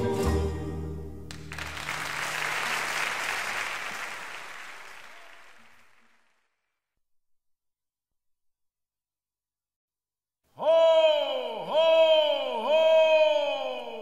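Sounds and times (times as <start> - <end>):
music track: 0.0 - 2.1
audience applause: 1.3 - 6.7.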